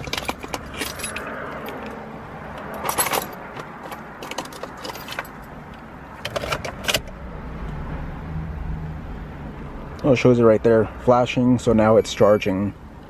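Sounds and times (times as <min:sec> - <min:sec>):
car keys jangling: 0:00.0 - 0:07.1.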